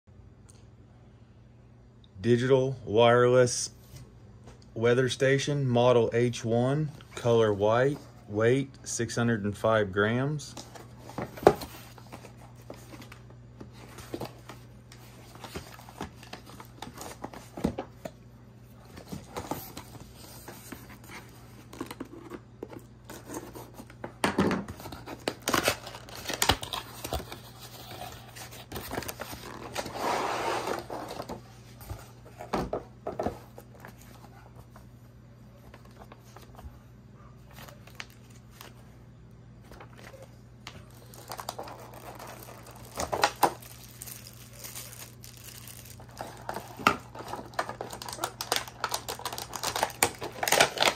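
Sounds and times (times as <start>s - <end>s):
plastic packaging crinkling: 24.8s - 30.0s, 37.5s - 38.9s, 39.7s - 50.9s.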